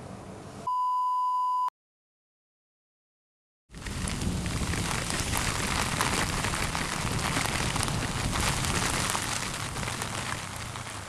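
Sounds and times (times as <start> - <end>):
heavy rain on microphone: 3.7 - 11.0
low rumble: 3.7 - 11.0.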